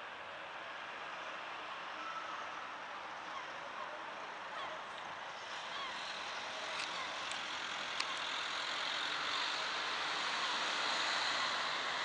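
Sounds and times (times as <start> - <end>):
distant road traffic hiss: 0.0 - 12.0
small clicks: 6.7 - 8.3.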